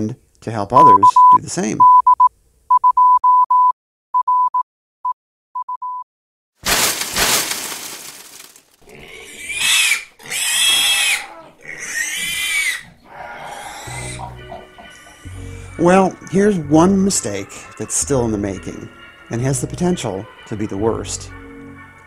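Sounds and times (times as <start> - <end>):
morse code beeps: 0.8 - 6.0
pig squealing: 8.8 - 16.1.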